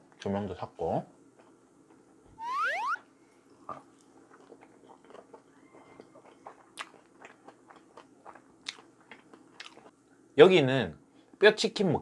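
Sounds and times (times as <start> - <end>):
person chewing with crunches: 3.8 - 10.0.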